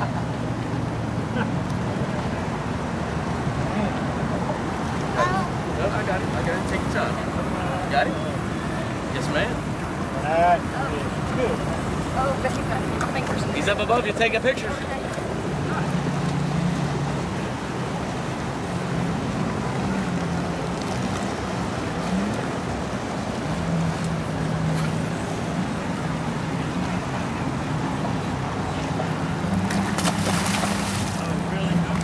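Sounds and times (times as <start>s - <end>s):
boat engine hum: 0.0s - 32.0s
water noise: 0.0s - 32.0s
fish thrashing splashes: 29.5s - 31.4s.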